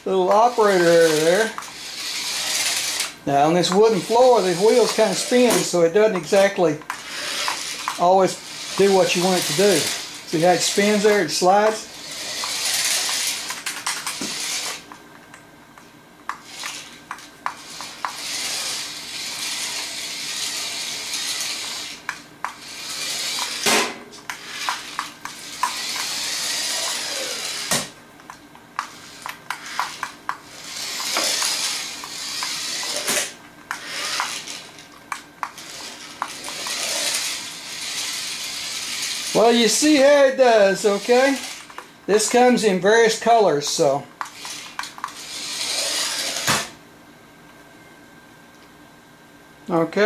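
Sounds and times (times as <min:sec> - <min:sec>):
toy wheels sliding on wood floor: 0:00.0 - 0:15.0, 0:16.3 - 0:46.8
small electric motor whirring: 0:00.1 - 0:15.0, 0:16.3 - 0:46.8
sharp plastic clicks: 0:12.4 - 0:15.5.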